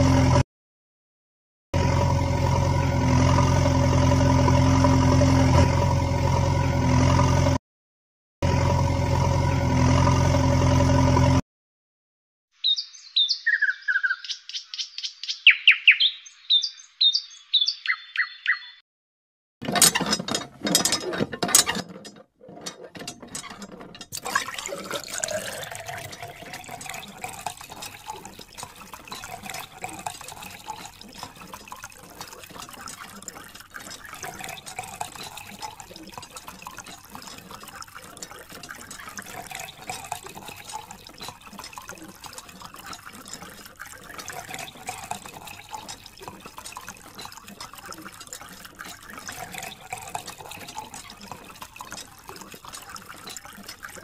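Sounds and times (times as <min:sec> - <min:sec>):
water trickling and splashing: 0:19.6 - 0:54.0.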